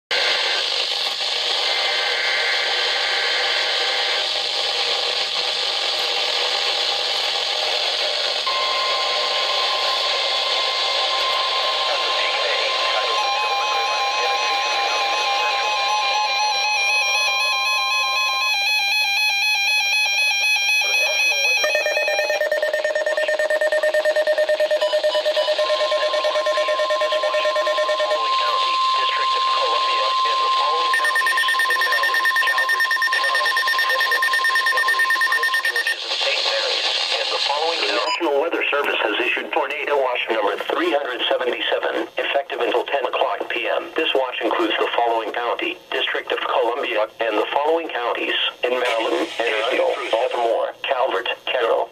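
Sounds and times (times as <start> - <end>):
radio static hiss: 0.1 - 17.1, 20.7 - 22.3, 25.5 - 51.9
steady high alarm tone: 5.3 - 36.0
pulsing electronic alarm beep: 8.4 - 36.0.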